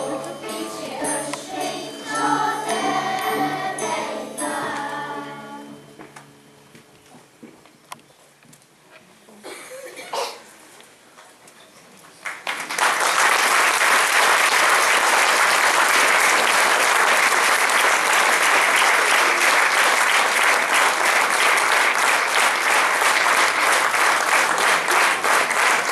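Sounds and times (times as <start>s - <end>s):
audience applauding: 12.2s - 25.9s.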